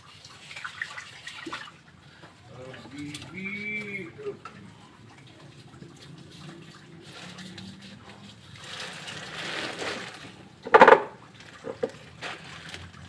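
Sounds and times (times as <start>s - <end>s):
plastic sack rustling: 7.0s - 13.0s.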